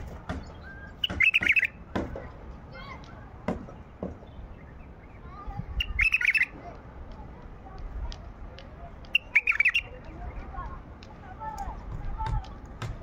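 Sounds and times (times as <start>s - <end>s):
bulbul singing: 0.0s - 2.1s, 3.6s - 6.6s, 9.0s - 10.7s.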